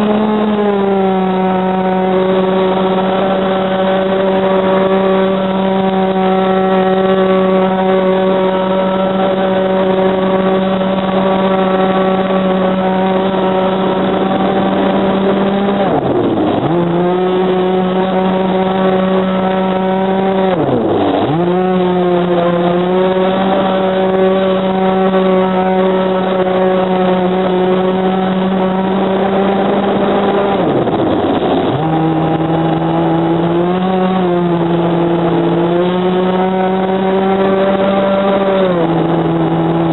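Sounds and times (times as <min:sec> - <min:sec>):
two-stroke boat engine droning: 0:00.0 - 0:39.9.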